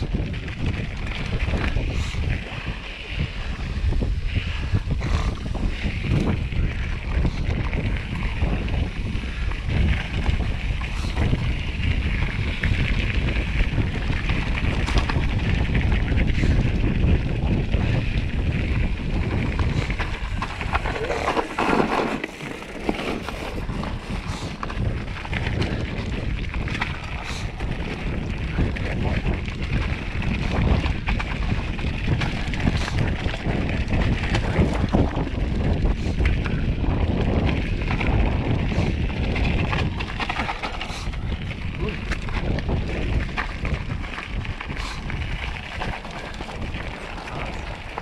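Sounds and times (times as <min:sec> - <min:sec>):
bike rattling over bumps: 0:00.0 - 0:48.0
wind on microphone: 0:00.0 - 0:48.0
tyres crunching on gravel: 0:18.6 - 0:25.9, 0:37.6 - 0:48.0.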